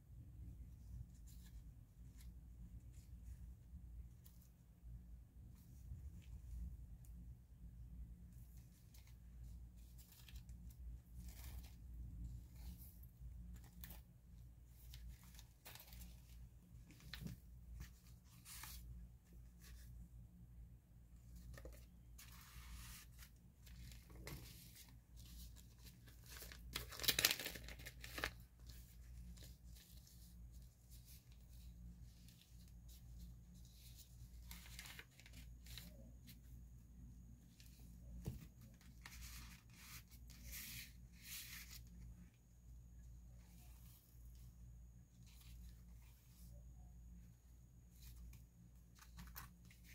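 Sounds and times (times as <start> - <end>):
paper and card rustling: 14.7 - 20.0, 21.2 - 36.5, 37.5 - 42.2, 47.9 - 49.9.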